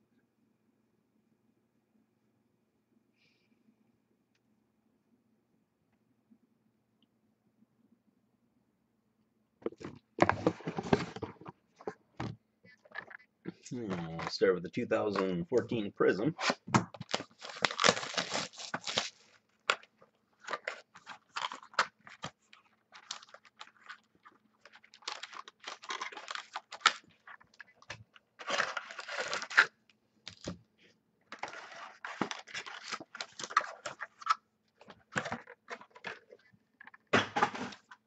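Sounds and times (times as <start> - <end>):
cellophane crinkling and tearing: 16.4 - 30.6, 31.3 - 37.0.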